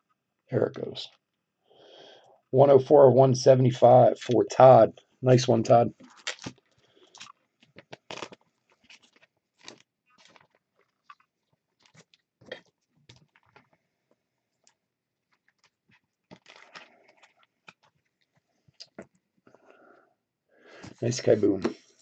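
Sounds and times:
plastic sleeve crinkling: 0:05.9 - 0:13.7, 0:14.6 - 0:19.0.

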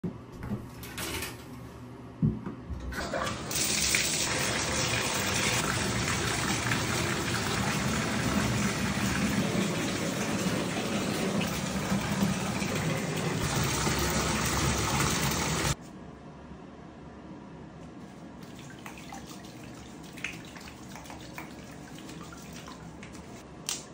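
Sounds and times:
tap water running into bathtub: 0:02.9 - 0:15.8, 0:18.4 - 0:23.4.

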